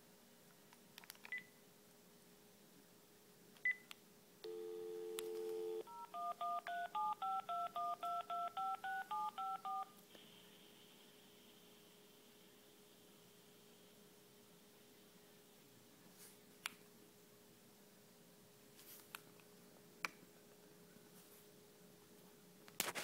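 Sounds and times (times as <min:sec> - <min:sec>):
dial tone: 0:04.5 - 0:09.9
phone key beeps: 0:04.5 - 0:09.9
touch-tone dialling: 0:04.5 - 0:09.9
faint line hiss: 0:10.0 - 0:16.9.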